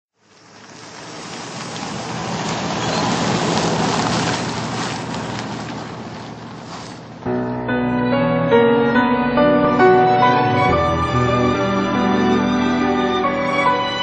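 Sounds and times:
car on wet road: 0:00.1 - 0:07.2.

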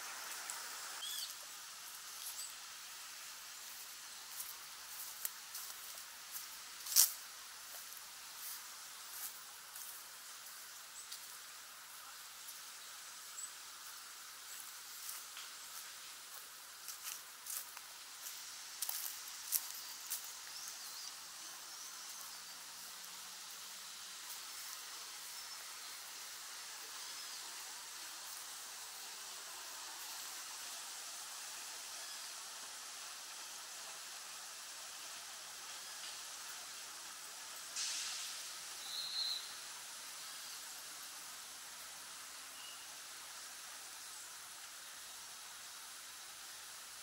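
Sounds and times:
hissing outdoor ambience: 0:00.0 - 0:47.0
distant bird chirps: 0:01.0 - 0:01.4.

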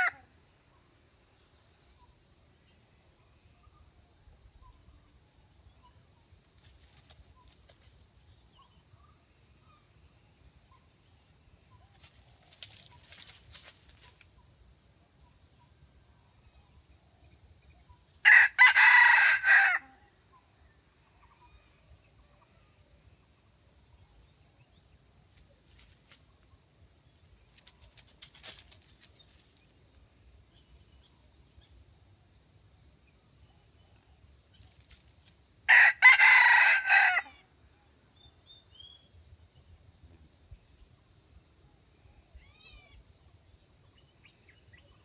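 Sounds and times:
rustling in dry leaves: 0:06.4 - 0:08.1, 0:11.2 - 0:14.5, 0:25.3 - 0:26.5, 0:27.3 - 0:29.9, 0:34.5 - 0:35.6.

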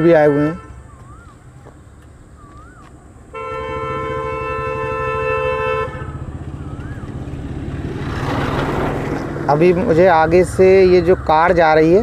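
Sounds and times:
vehicle horn: 0:00.0 - 0:00.9, 0:03.3 - 0:06.4
vehicle engine running: 0:03.5 - 0:11.4.

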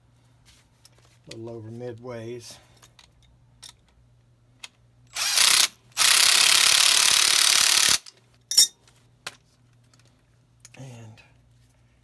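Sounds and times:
ratchet wrench clicking: 0:05.2 - 0:08.1.

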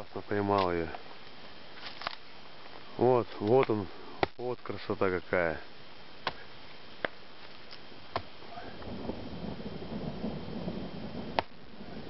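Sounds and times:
distant thunder rumble: 0:08.6 - 0:12.0.

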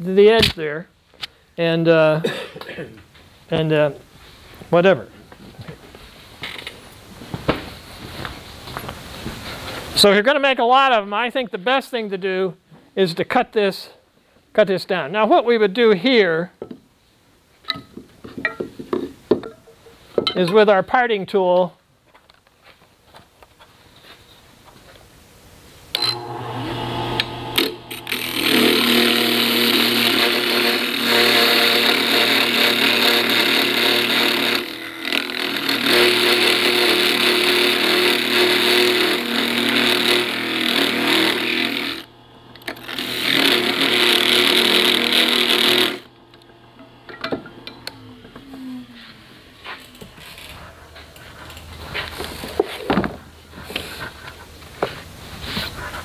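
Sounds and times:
tool cutting spinning wood: 0:26.0 - 0:48.7
lathe motor humming: 0:26.0 - 0:49.0.

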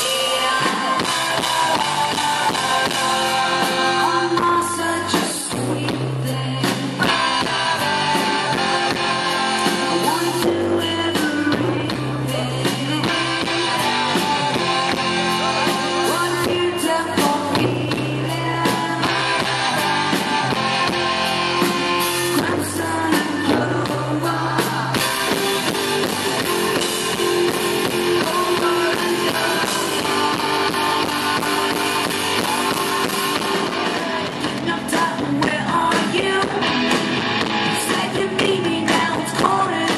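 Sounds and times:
woman singing: 0:00.0 - 0:20.7, 0:22.2 - 0:37.0, 0:37.7 - 0:39.9
live rock band playing: 0:00.0 - 0:39.9.

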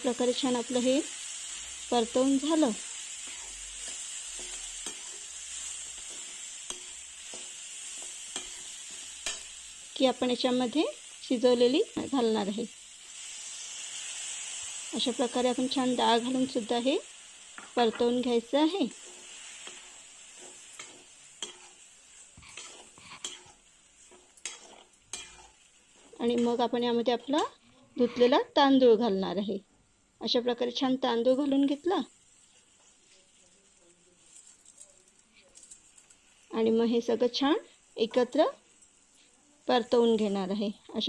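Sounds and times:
vegetables sizzling in oil: 0:00.0 - 0:41.0
spatula scraping a pan: 0:00.4 - 0:10.2, 0:17.5 - 0:27.6.

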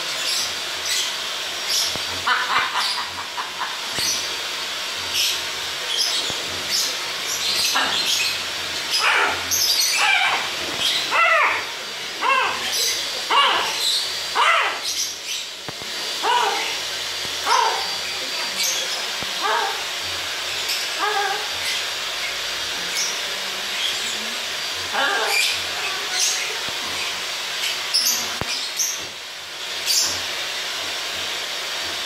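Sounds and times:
macaw warbling calls: 0:05.2 - 0:15.5, 0:16.2 - 0:16.8, 0:17.4 - 0:19.9, 0:22.9 - 0:29.0.

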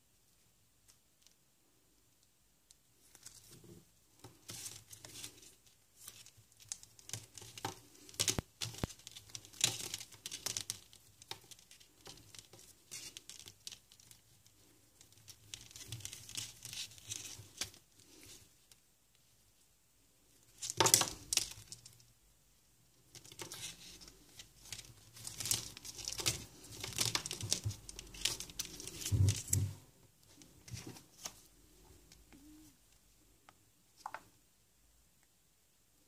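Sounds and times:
plastic packaging crinkling: 0:23.2 - 0:29.8.

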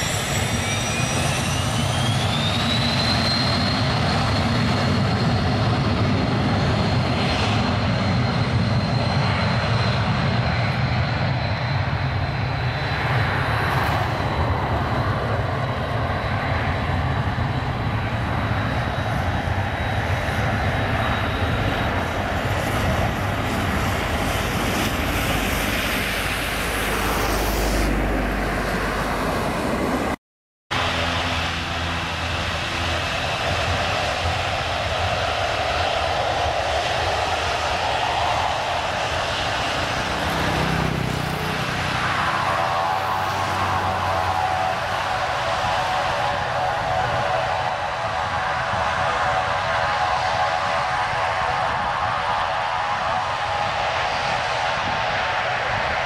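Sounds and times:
broad jet rush: 0:00.0 - 0:56.0
jet engine whine: 0:00.0 - 0:56.0.

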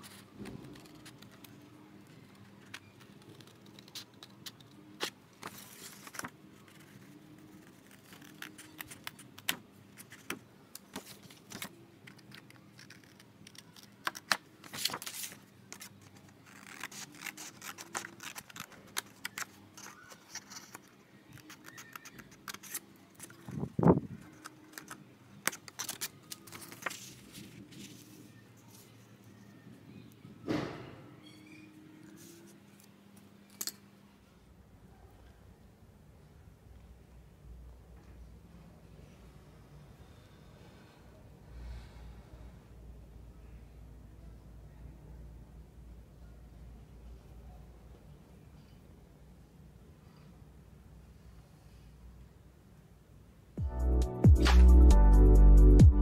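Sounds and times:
paper rustling and crackling: 0:00.0 - 0:29.0.

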